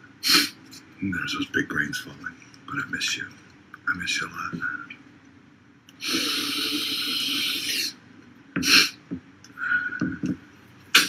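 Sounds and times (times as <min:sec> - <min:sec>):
man sniffing: 0:00.2 - 0:00.6, 0:06.0 - 0:08.0, 0:08.6 - 0:09.0.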